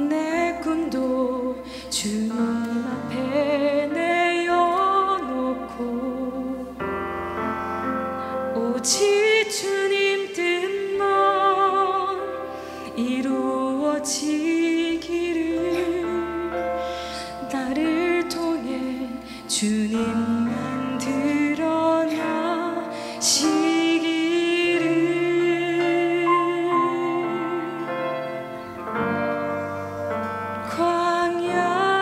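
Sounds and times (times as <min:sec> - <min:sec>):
woman singing into a microphone: 0:00.0 - 0:06.9, 0:08.3 - 0:29.8, 0:30.5 - 0:32.0
instrumental sustained chords: 0:00.0 - 0:32.0.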